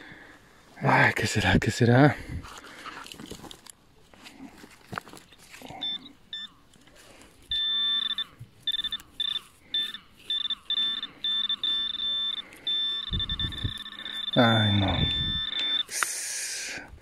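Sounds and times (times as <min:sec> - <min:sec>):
metal detector beeps: 0:05.2 - 0:16.9.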